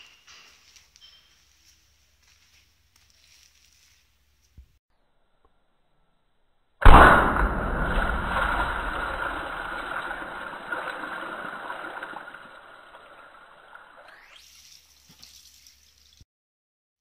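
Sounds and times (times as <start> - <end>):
water balloons bursting: 6.8 - 16.2
water splashing and pouring: 6.8 - 16.2.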